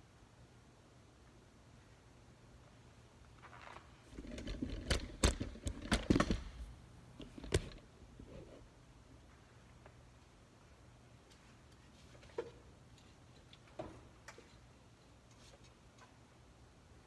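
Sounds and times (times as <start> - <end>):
rustling: 3.2 - 6.6
sharp clicks and knocks: 4.2 - 6.6, 7.2 - 7.8.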